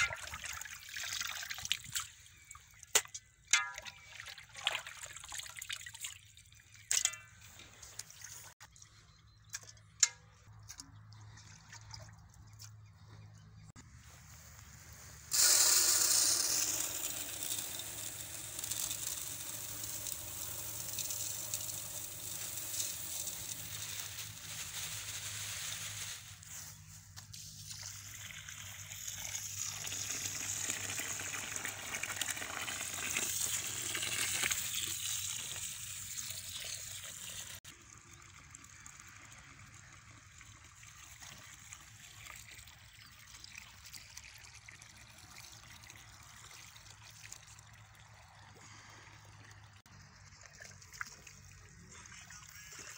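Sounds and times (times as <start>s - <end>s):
hose water gushing into a metal pot: 0.0s - 8.6s, 14.6s - 52.9s
hands rinsing rice: 14.1s - 37.6s.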